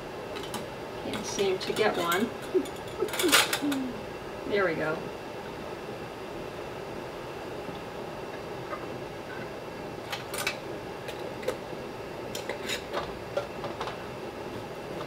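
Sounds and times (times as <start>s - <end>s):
boiling water hissing: 0.0s - 15.0s.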